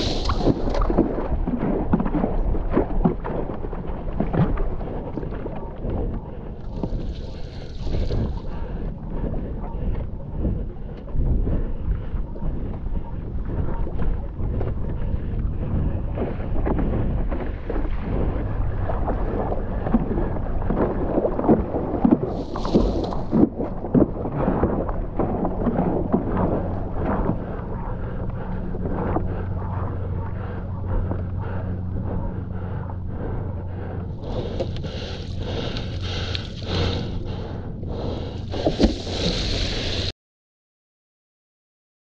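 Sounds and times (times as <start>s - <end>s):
water splashing against paddleboard: 0.0s - 8.6s, 16.6s - 27.5s, 34.2s - 40.1s
paddle strokes: 0.0s - 40.1s
wind on microphone: 0.0s - 40.1s.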